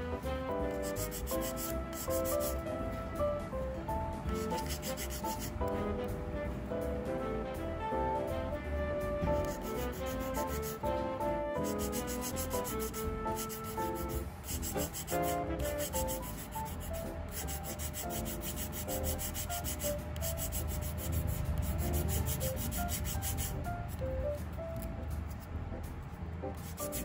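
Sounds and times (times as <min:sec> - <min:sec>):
background music with melody: 0:00.0 - 0:27.0
nail file rasping on plastic: 0:00.7 - 0:02.6, 0:04.3 - 0:05.8, 0:09.4 - 0:10.9, 0:11.6 - 0:23.6, 0:26.6 - 0:27.0.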